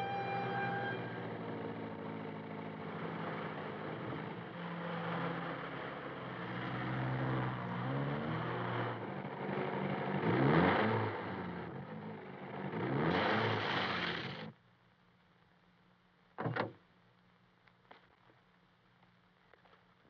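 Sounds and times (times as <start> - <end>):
sports car engine running: 0.0 - 14.5.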